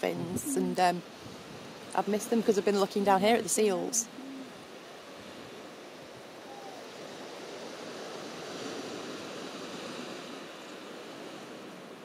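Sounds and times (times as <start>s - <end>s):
sea surf washing onto beach: 0.0s - 12.0s.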